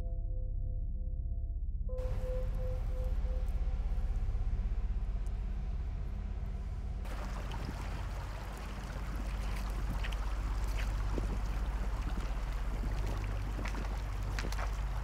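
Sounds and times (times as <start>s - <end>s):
low ambient drone: 0.0s - 15.0s
stream trickling over pebbles: 7.1s - 15.0s.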